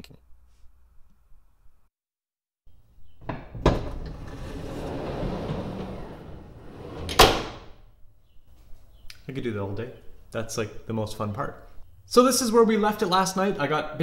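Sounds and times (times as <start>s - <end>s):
sliding door rumbling along track: 3.7s - 7.7s.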